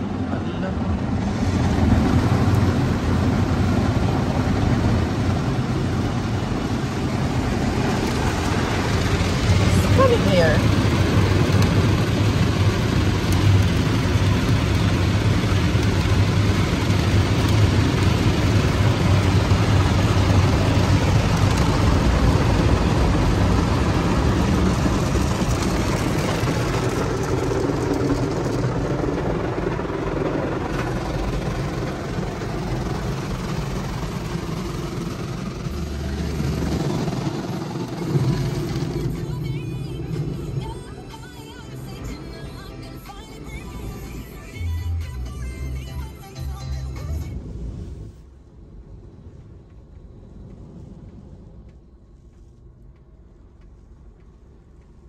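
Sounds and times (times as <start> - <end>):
car wash brushes and spray: 0.0 - 44.9, 46.1 - 55.0
low hum: 0.0 - 55.0.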